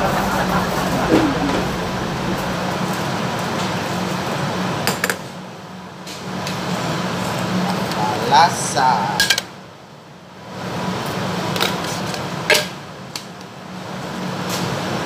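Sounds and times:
exhaust fan whirring: 0.0s - 4.0s.

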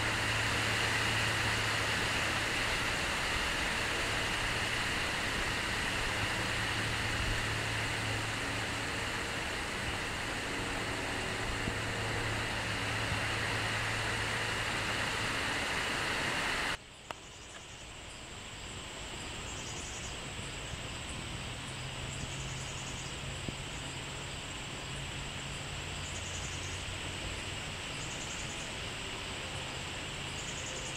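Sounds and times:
low hum: 0.0s - 16.8s
outdoor background hiss: 0.0s - 30.9s.

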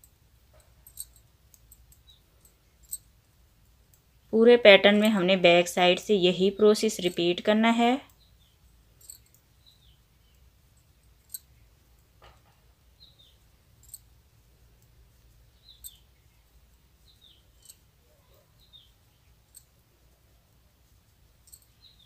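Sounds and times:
knitting needles clicking: 0.0s - 3.2s, 3.8s - 4.1s, 4.8s - 5.4s, 6.3s - 8.3s, 9.0s - 9.5s, 10.3s - 12.6s, 13.7s - 18.0s, 19.2s - 20.2s, 20.8s - 22.0s
low background hum: 0.0s - 22.0s.

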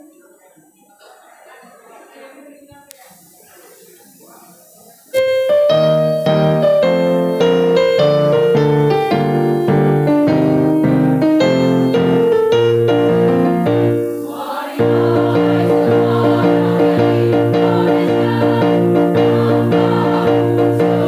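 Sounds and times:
electronic keyboard piano chords: 5.2s - 21.0s.

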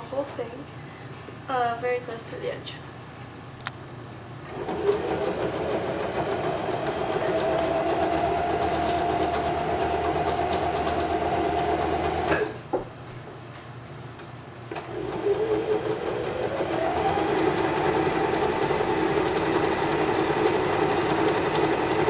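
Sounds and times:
electric sewing machine running: 4.5s - 12.5s, 14.7s - 22.0s.

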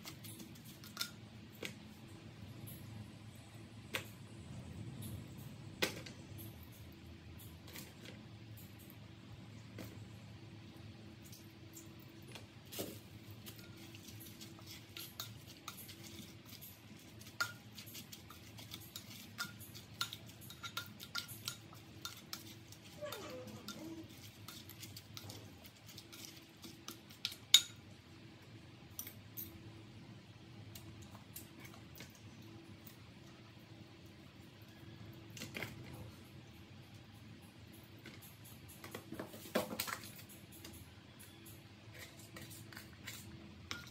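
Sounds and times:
spoon clinking against a pot: 13.5s - 25.3s, 39.8s - 43.9s.

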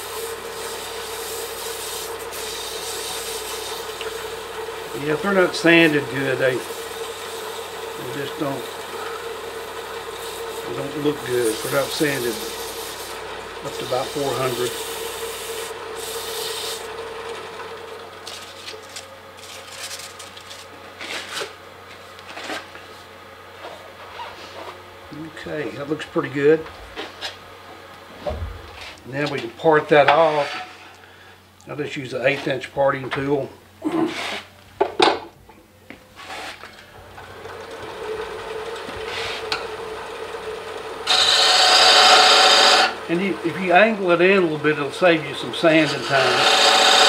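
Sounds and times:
sandpaper rubbing spinning wood: 0.0s - 17.0s, 18.2s - 21.5s, 36.1s - 36.6s, 39.0s - 39.6s, 41.1s - 47.0s
lathe motor hum: 0.0s - 22.5s, 36.2s - 47.0s.

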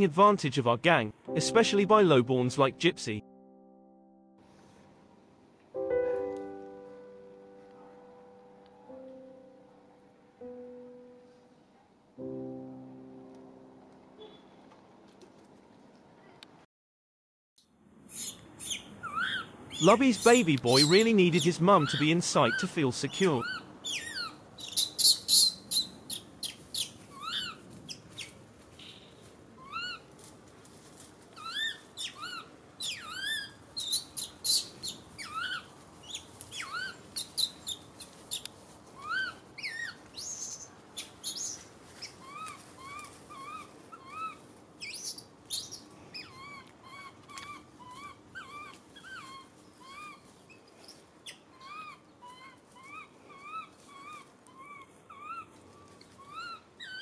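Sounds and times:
baby monkey squealing: 18.1s - 19.9s, 20.7s - 21.0s, 21.8s - 27.6s, 29.6s - 30.0s, 31.4s - 37.8s, 39.0s - 41.6s, 42.2s - 50.3s, 51.2s - 55.5s, 56.2s - 57.0s
baby monkey calling: 18.1s - 27.6s, 29.6s - 30.0s, 31.4s - 38.4s, 39.0s - 50.3s, 51.2s - 55.5s, 56.2s - 57.0s.

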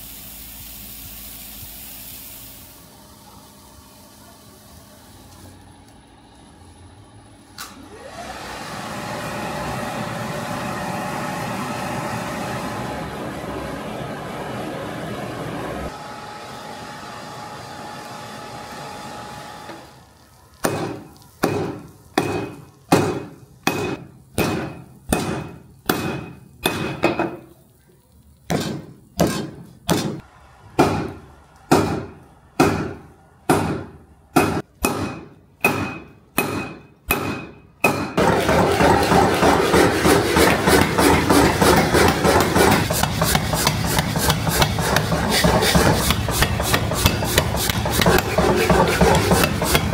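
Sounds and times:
hammer striking steel on anvil: 20.6s - 27.4s, 28.5s - 30.2s, 30.8s - 49.9s
rasping grinding noise: 38.7s - 49.9s.

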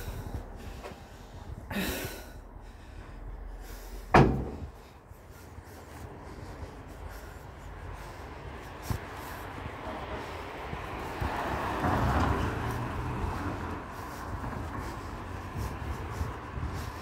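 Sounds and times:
low outdoor rumble: 0.0s - 17.0s
sharp loud thump: 4.1s - 4.7s.

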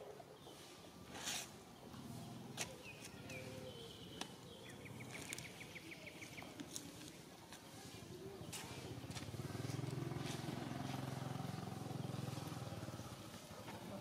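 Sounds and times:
vehicle engine passing by: 8.4s - 14.0s.

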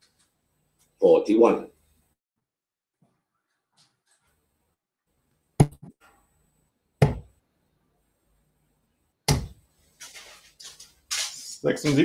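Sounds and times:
darts thudding into dartboard: 9.3s - 9.6s.

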